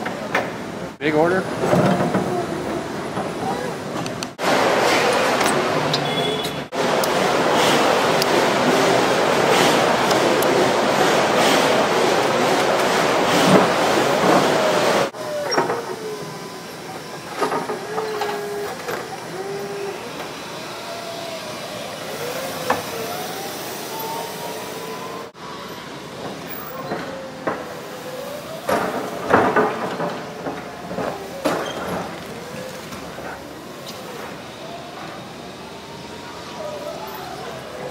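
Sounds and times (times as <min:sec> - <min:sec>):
forklift motors whining: 0:05.3 - 0:37.9
knocks and clatter: 0:28.6 - 0:32.5.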